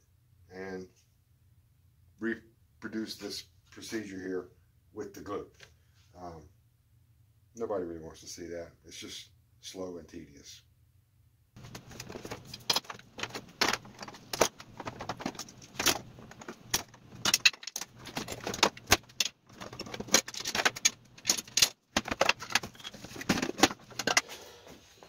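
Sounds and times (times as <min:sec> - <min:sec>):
wood and tools clattering on workbench: 0:11.6 - 0:24.4.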